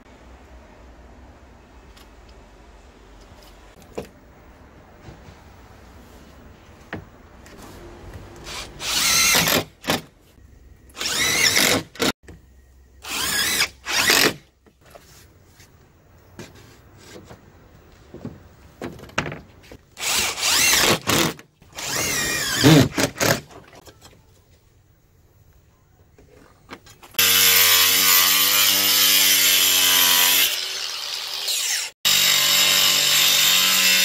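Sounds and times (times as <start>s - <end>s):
cordless drill driving screws: 11.0s - 12.1s, 20.0s - 23.4s.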